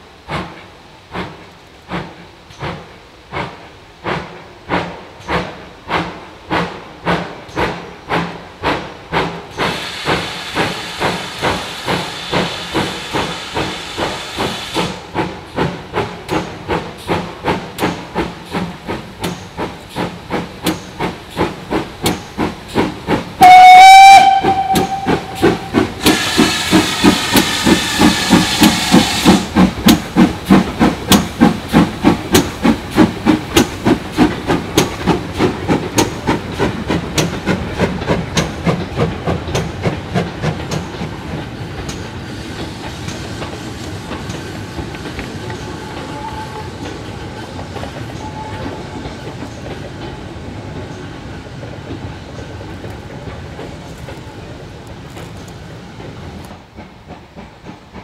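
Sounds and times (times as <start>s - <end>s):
steam hissing: 0.0s - 58.0s
steam locomotive exhaust beats: 0.0s - 58.0s
steam whistle blast: 23.4s - 29.3s.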